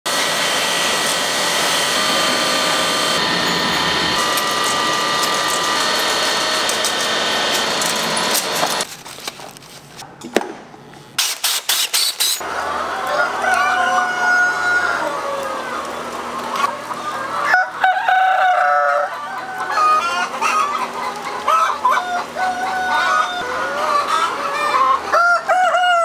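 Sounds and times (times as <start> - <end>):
machine tones: 0.1 - 8.9
quiet machine hum: 0.1 - 8.9
egg packing machinery clattering: 0.1 - 9.1
eggs rattling on roller conveyors: 0.8 - 9.3.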